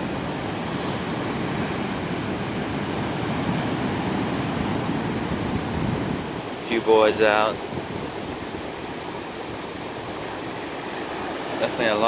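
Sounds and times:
surf breaking on shore: 0.0 - 12.0.

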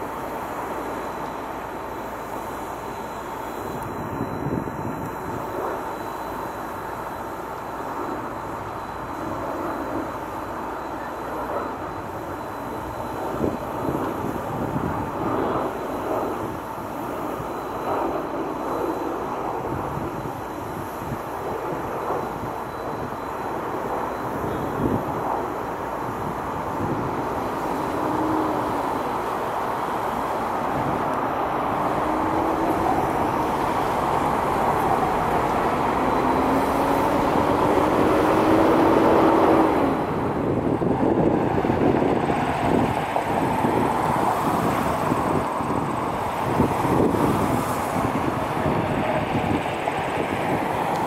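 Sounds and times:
faint rising whine: 0.0 - 42.1
jet engines rumbling: 0.0 - 51.0.

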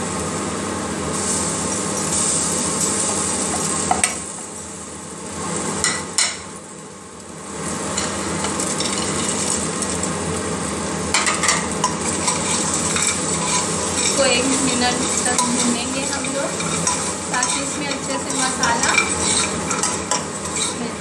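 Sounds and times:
food sizzling in a pot: 0.0 - 21.0
steel spoon clinking on pot: 11.2 - 20.8.

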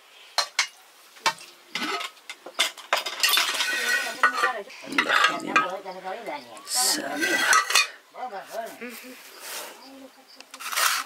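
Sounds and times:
cutlery and dishes clinking: 0.4 - 5.8, 7.2 - 8.0
voices talking: 3.5 - 10.7.

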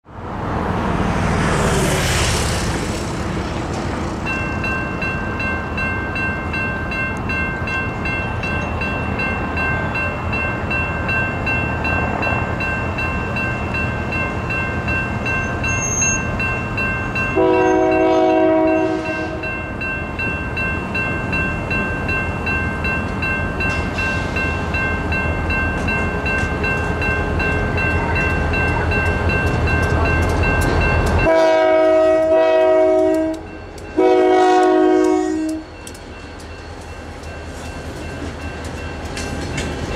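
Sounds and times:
low rumble of train: 0.0 - 39.9
vehicle whooshing past: 0.4 - 4.2
railroad crossing bells ringing: 1.6 - 39.9
locomotive horn blast: 17.4 - 19.5, 31.2 - 35.8.

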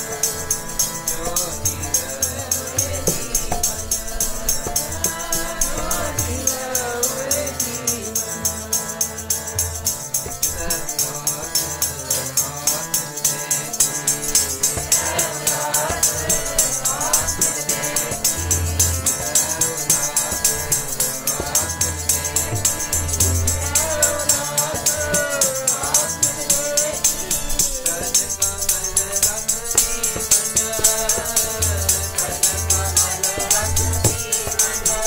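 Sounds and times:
voices singing a hymn: 0.0 - 9.7, 13.6 - 35.0
harmonium chords: 0.0 - 35.0
jingling hand percussion: 0.0 - 35.0.

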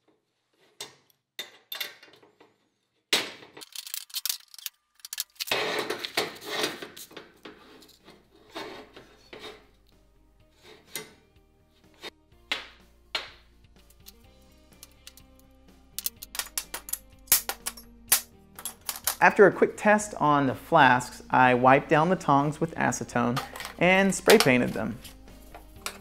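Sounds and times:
background music: 3.6 - 26.0
steel tongs clanking on metal: 16.0 - 19.2.

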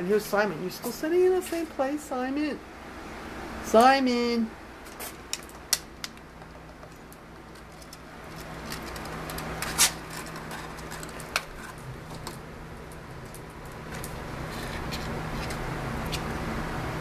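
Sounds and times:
steady low hum: 0.0 - 17.0
cat claws clicking and scraping: 4.9 - 16.3.

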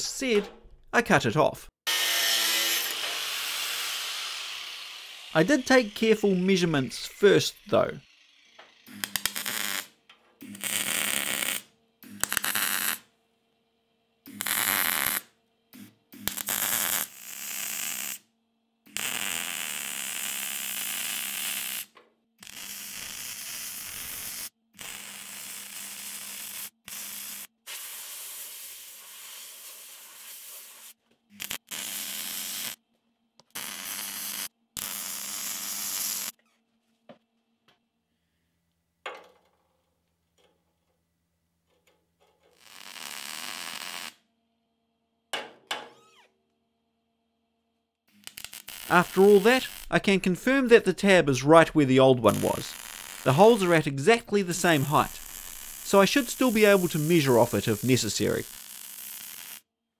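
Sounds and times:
welder low hum: 1.9 - 13.0, 48.2 - 59.6
welding arc crackling and hissing: 2.8 - 8.0, 8.8 - 13.0, 14.3 - 18.2, 18.9 - 32.8, 33.4 - 36.4, 42.5 - 44.2, 48.1 - 51.6, 52.2 - 59.6.

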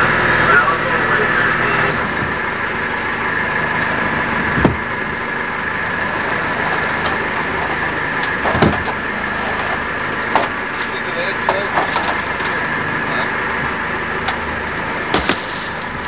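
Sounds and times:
boat engine running with whine: 0.0 - 16.0
sharp knocks: 4.6 - 4.9, 15.1 - 15.7.

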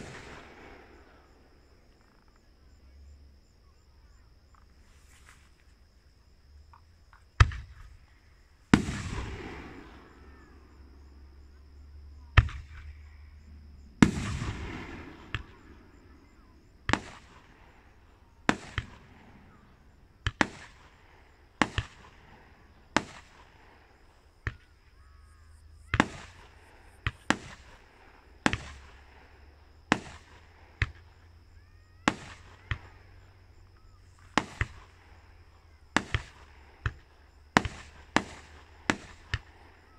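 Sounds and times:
firework shells bursting: 0.0 - 2.5, 6.7 - 11.7, 12.3 - 25.0, 25.6 - 31.4, 32.1 - 39.9.

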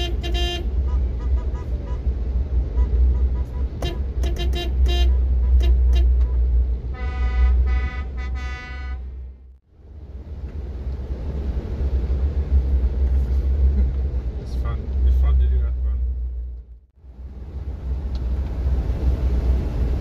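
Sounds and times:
vehicle horns honking: 0.0 - 2.1, 2.7 - 9.3
car driving rumble: 0.0 - 20.0.

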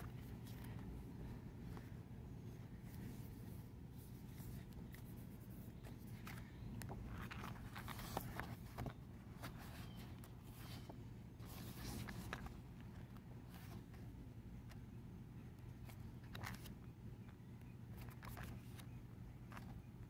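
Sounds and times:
pages turning: 0.0 - 1.0, 2.8 - 14.0, 15.8 - 16.8, 17.9 - 19.8
low background hum: 0.0 - 20.0.

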